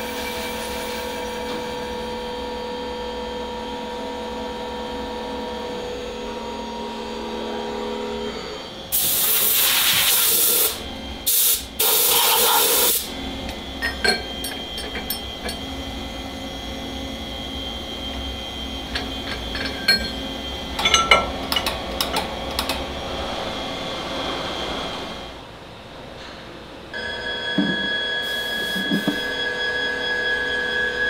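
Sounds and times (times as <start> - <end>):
steady machine hum: 0.0 - 9.4, 10.5 - 31.0
air blow gun hissing: 8.9 - 13.1, 28.2 - 29.3.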